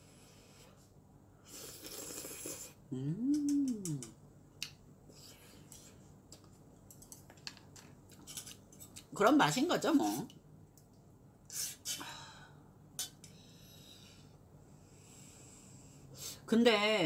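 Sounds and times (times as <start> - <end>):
closed-mouth mmm: 1.4 - 4.8
noodles slurped: 1.5 - 2.8.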